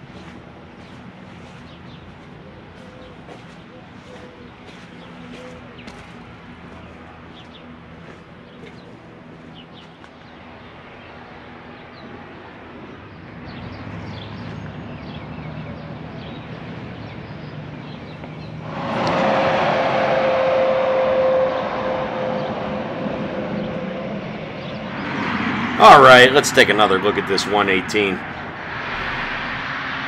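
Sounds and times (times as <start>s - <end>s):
motor vehicle passing loudly: 18.6s - 25.8s, 28.2s - 30.0s.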